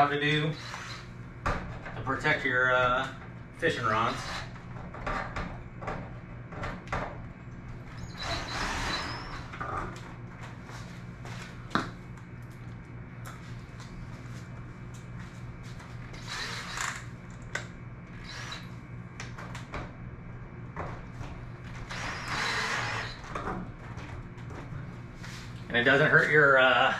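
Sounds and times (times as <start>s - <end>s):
cordless drill driving screws: 16.2s - 16.9s, 18.2s - 18.7s.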